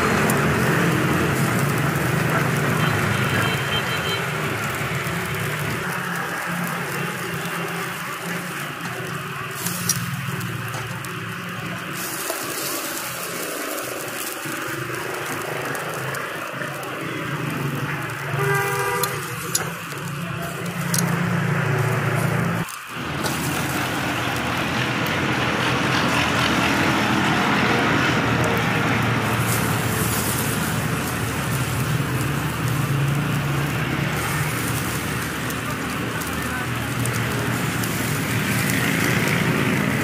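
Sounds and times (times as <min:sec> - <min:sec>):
steady hiss: 0:00.0 - 0:40.0
vehicle horn toot: 0:02.8 - 0:04.4, 0:18.3 - 0:19.5.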